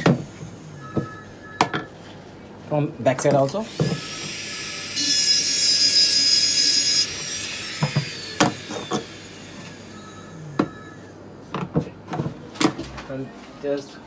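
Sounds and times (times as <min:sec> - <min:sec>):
rotary grinder whining: 0:03.6 - 0:11.1.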